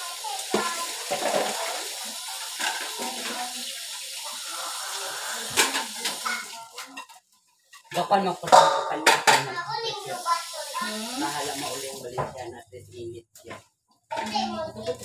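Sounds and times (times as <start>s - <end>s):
tap water running into basin: 0.0s - 7.1s, 7.9s - 12.5s.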